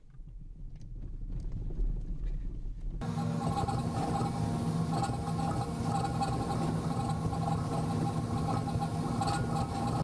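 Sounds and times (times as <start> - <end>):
car mechanical running hum: 3.0 - 10.0
mid-pitched whine: 3.0 - 10.0.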